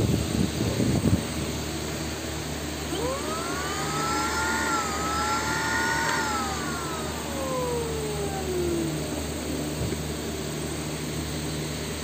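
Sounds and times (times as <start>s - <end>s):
handheld vacuum motor whine: 2.8s - 10.7s.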